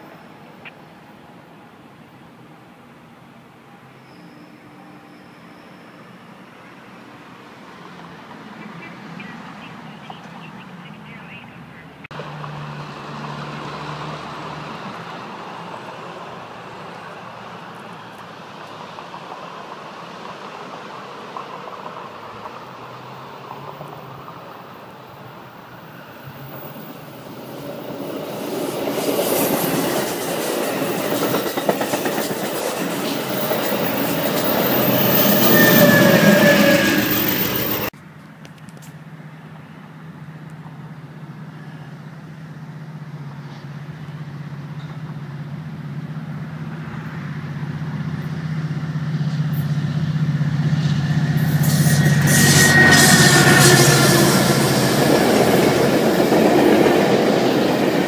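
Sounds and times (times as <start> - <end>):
passenger train passing: 0.0 - 38.0, 39.0 - 58.0
diesel locomotive engine drone: 0.0 - 58.0
train wheel squeals: 3.7 - 6.6, 25.9 - 37.9, 49.2 - 57.8.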